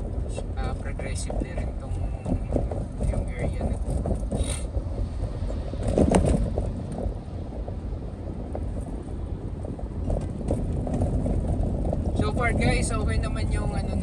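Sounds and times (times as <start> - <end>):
vehicle driving rumble: 0.0 - 14.0.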